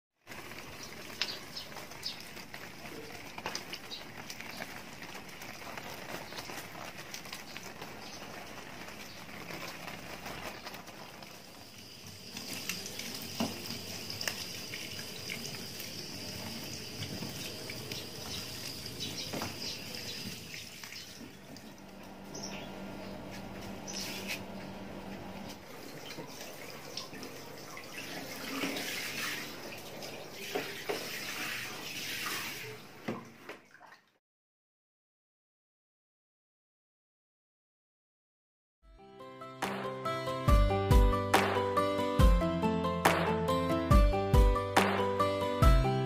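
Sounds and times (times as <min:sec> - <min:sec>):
water splashing over leaves: 0:00.2 - 0:22.2, 0:25.4 - 0:34.2
tap running into a metal sink: 0:12.4 - 0:15.1.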